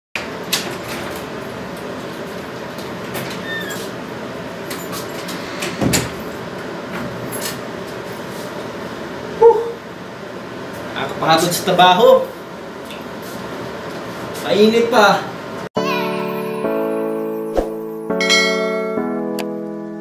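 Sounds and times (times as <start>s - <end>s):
steady background hum: 0.2s - 15.7s.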